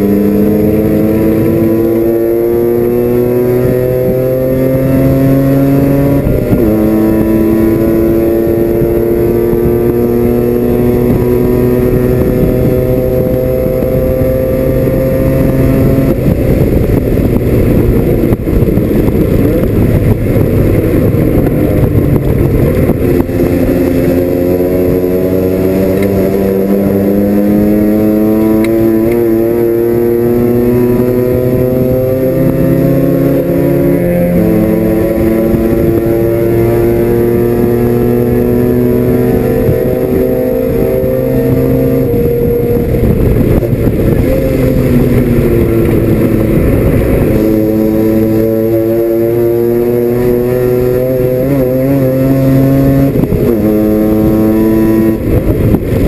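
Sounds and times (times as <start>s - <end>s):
rotary race car engine revving: 0.0s - 56.0s.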